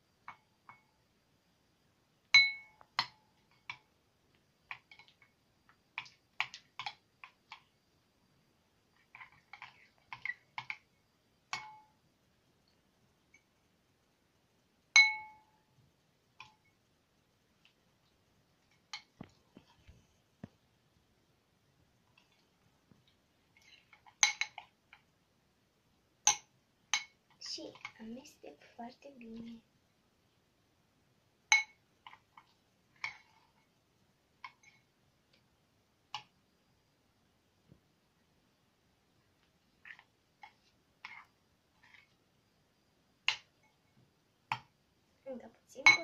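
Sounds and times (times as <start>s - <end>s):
glass bowl clinking: 2.4s - 3.2s, 11.5s - 12.0s, 15.0s - 15.6s, 24.1s - 24.7s, 26.3s - 27.2s, 31.5s - 31.8s.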